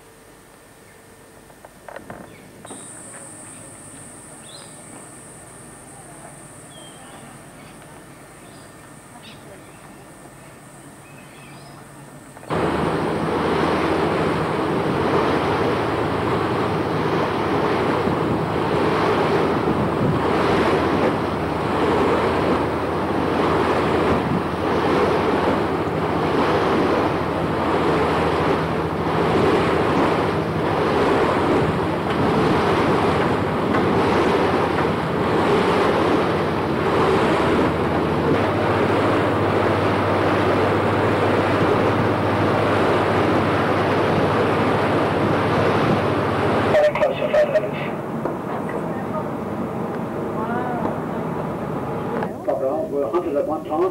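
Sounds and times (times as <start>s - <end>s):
boat engine humming: 0.0s - 53.9s
wind rushing over microphone: 12.5s - 47.1s.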